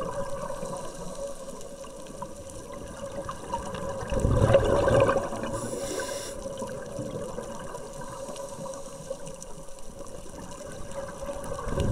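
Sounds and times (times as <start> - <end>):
low underwater wash: 0.0 - 11.9
scuba regulator hiss: 5.5 - 6.6.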